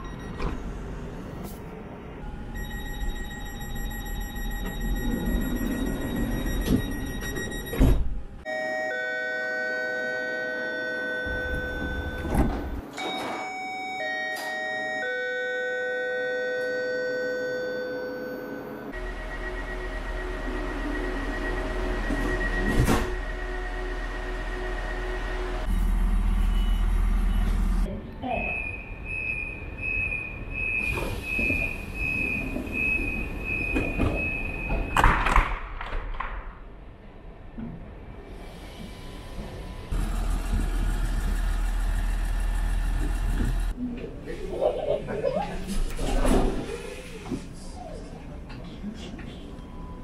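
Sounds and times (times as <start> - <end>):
train door warning tone: 0.0 - 0.7, 2.2 - 35.0, 49.3 - 50.0
doors shutting with clunks: 6.5 - 8.2, 11.2 - 13.6.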